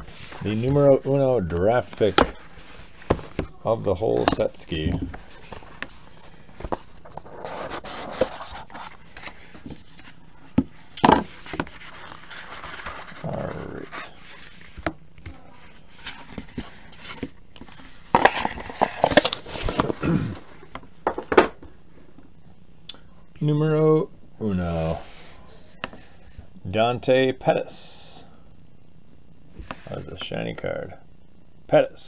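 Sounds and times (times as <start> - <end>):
cardboard rustling and scraping: 0.0 - 20.8.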